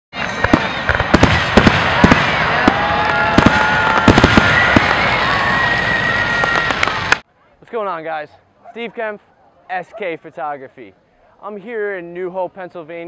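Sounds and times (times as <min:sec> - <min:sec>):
fireworks bangs and pops: 0:00.2 - 0:07.2
fireworks crackle: 0:00.2 - 0:07.2
fireworks whistling: 0:00.2 - 0:07.2.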